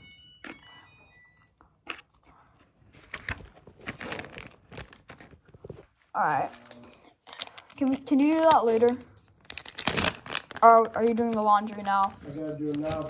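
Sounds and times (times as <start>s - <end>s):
plastic bait packets crinkling: 6.2s - 13.0s.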